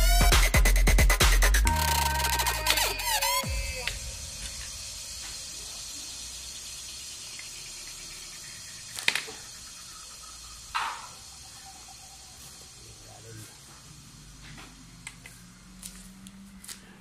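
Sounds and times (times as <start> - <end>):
steady hiss: 2.4 - 16.5.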